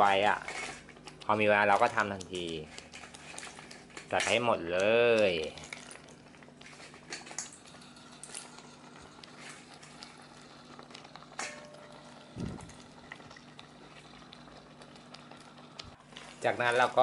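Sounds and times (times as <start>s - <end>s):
curry simmering in a pan: 0.0s - 17.0s
crab shells clicking and knocking: 0.2s - 10.1s.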